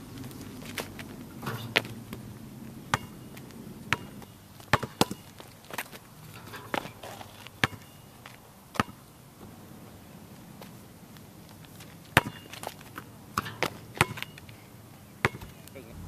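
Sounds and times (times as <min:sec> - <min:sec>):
basketball bouncing on asphalt: 0:00.0 - 0:14.6, 0:15.2 - 0:16.0
ball hitting basketball rim: 0:01.4 - 0:02.3, 0:02.9 - 0:03.3, 0:03.9 - 0:05.2, 0:12.2 - 0:12.5, 0:13.4 - 0:14.4, 0:15.2 - 0:16.0.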